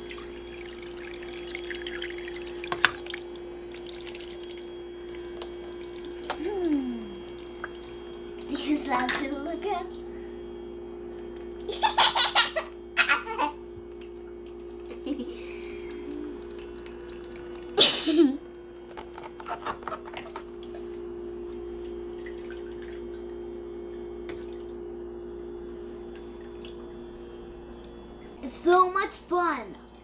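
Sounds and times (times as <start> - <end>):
water trickling: 0.0 - 9.7, 10.9 - 12.0, 13.4 - 30.0
toy faucet pump humming: 0.0 - 10.4, 11.1 - 24.6.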